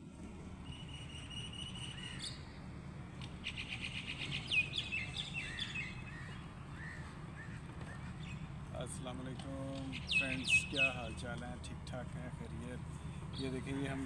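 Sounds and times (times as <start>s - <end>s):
low outdoor rumble: 0.0s - 14.0s
birds chirping and calling: 0.6s - 2.6s, 3.2s - 8.6s, 9.4s - 11.3s.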